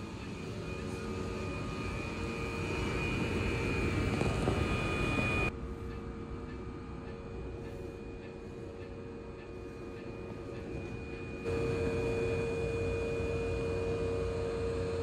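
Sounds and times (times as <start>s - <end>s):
electric train hum and whine: 0.0s - 15.0s.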